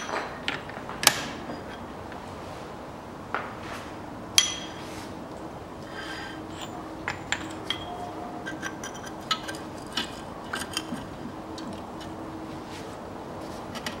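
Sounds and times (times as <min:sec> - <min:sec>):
faint steady hum: 0:00.0 - 0:14.0
socket wrench and tools clinking: 0:06.5 - 0:12.1.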